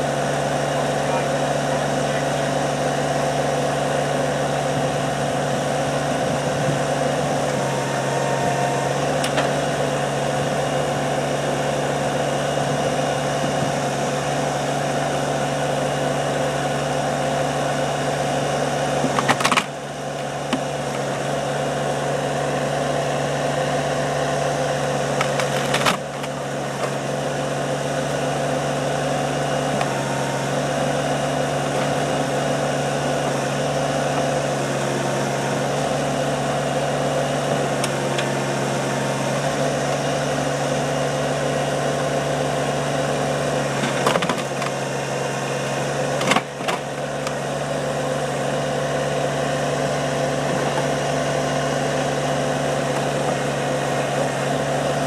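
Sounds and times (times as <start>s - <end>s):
tractor diesel engine running: 0.0s - 55.0s.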